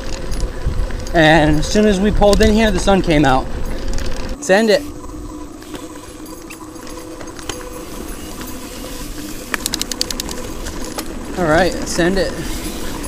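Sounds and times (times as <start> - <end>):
bike tyres rolling on dirt trail: 0.0 - 13.0
rapid ticking: 5.0 - 12.5.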